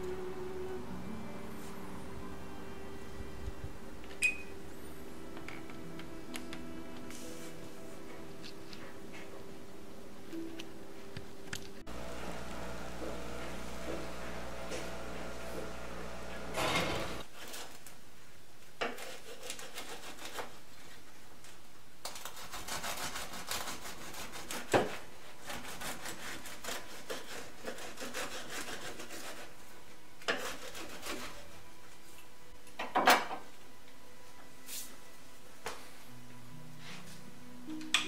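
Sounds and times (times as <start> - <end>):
bread knife sawing crusty loaf: 18.9 - 20.6, 22.1 - 29.6, 30.3 - 31.6.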